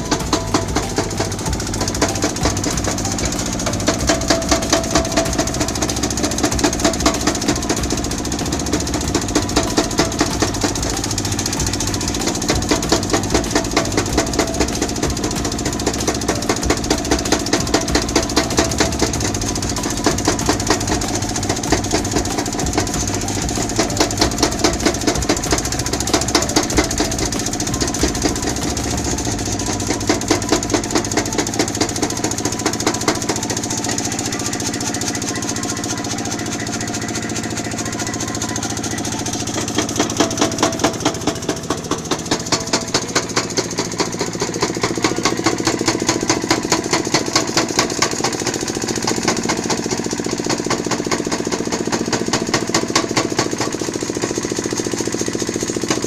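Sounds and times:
machine drive drone: 0:00.0 - 0:56.0.

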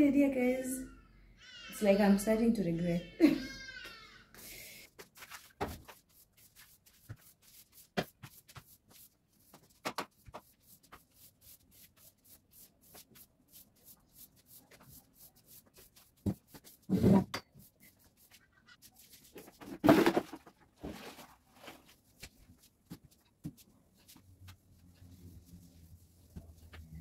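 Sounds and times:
household items clicking and knocking: 0:19.3 - 0:21.2.

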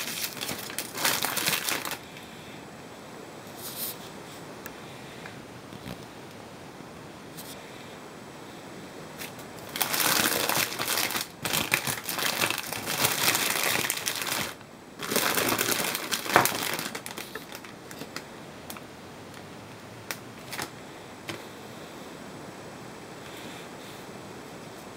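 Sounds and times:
foil and plastic bag crinkling: 0:00.0 - 0:02.2, 0:09.2 - 0:18.8, 0:20.4 - 0:20.8.

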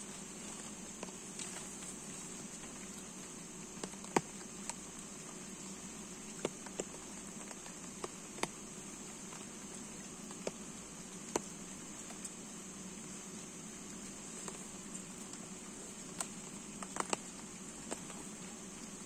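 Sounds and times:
light sharp ticks: 0:06.3 - 0:10.6, 0:11.2 - 0:12.4, 0:13.9 - 0:18.9.

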